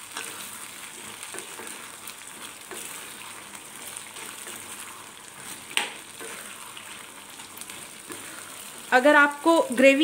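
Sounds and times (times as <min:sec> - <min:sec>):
wooden spatula stirring: 0:00.0 - 0:09.9
food sizzling in a wok: 0:00.0 - 0:10.0.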